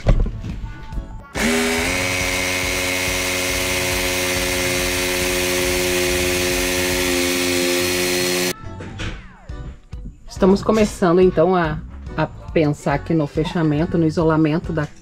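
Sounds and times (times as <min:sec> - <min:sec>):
power tool motor whining: 0:01.4 - 0:08.5.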